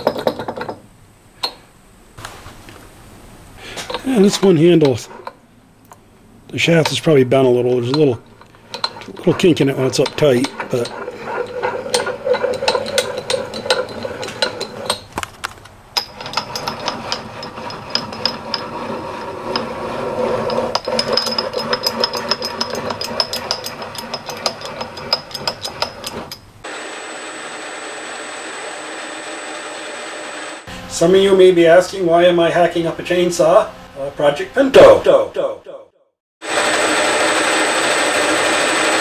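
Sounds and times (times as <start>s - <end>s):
leadscrew rattling and scraping: 7.7s - 26.4s.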